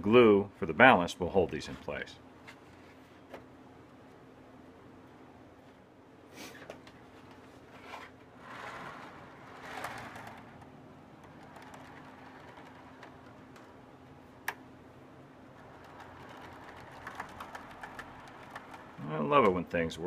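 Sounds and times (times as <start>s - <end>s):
model train wheels clicking on rails: 8.4s - 13.7s, 15.6s - 19.6s.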